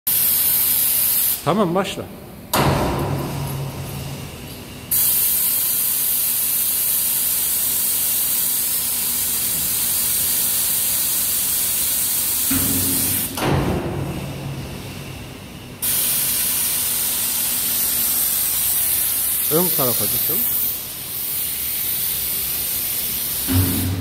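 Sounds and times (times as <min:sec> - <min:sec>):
compressed air hissing: 0:04.9 - 0:13.4, 0:15.8 - 0:24.0.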